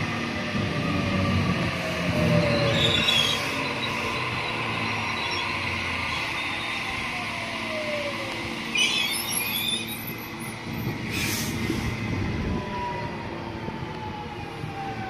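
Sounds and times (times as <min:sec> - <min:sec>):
electric train rumble and whine: 0:00.0 - 0:15.0
high wheel squeals: 0:02.1 - 0:07.1, 0:08.6 - 0:11.5.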